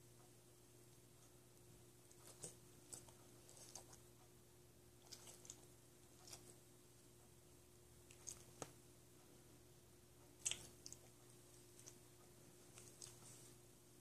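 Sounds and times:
faint steady hum: 0.0s - 14.0s
soft clicks and mouthing: 8.0s - 8.8s, 10.2s - 13.4s.

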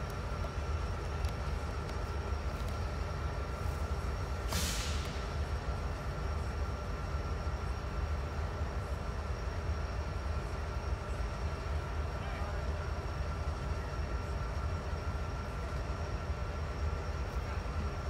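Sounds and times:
diesel locomotive idling: 0.0s - 18.0s
air hiss: 4.4s - 5.2s.

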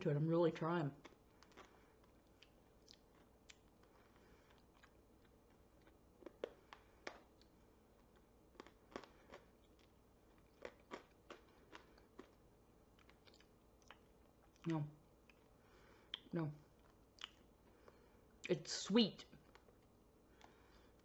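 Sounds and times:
hard candy crunching: 0.9s - 15.4s.

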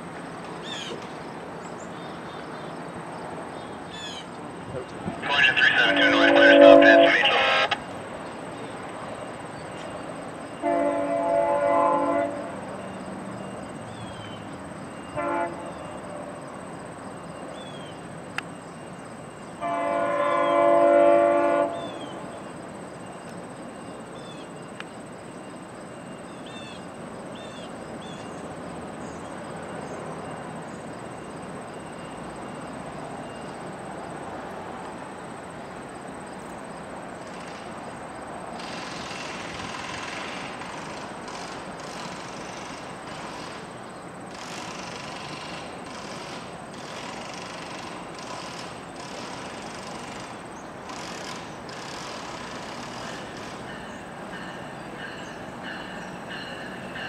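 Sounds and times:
distant train horn blasts: 5.3s - 7.9s, 10.6s - 12.9s, 14.9s - 16.4s, 19.6s - 22.4s.

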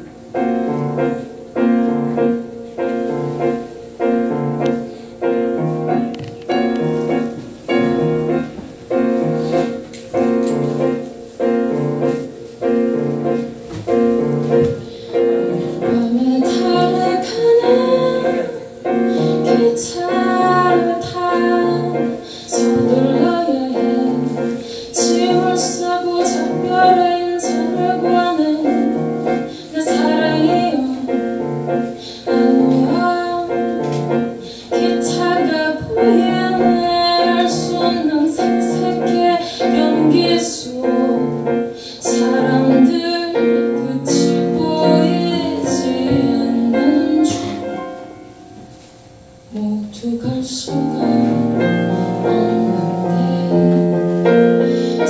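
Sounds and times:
piano chords: 0.0s - 55.0s
woman singing: 14.6s - 48.2s, 49.5s - 55.0s.

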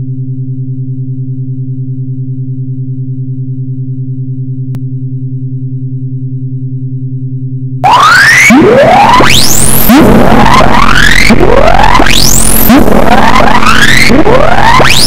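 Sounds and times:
pulsing electronic drone: 7.8s - 15.0s
rising electronic alarm sweeps: 7.8s - 15.0s.

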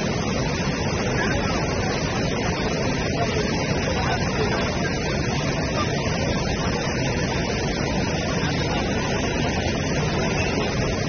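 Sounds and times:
floodwater rushing: 0.0s - 11.0s.

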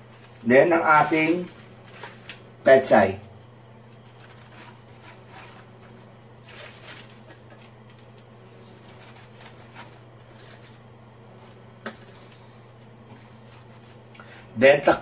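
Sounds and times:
steady low hum: 0.0s - 15.0s
leaves rustling: 4.0s - 7.6s.

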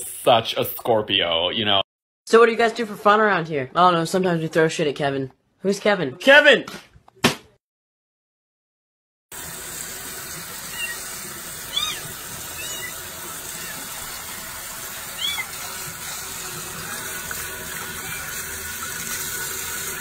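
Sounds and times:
tap water running into sink: 9.3s - 20.0s
kitten mewing: 11.7s - 13.9s, 15.1s - 15.6s.

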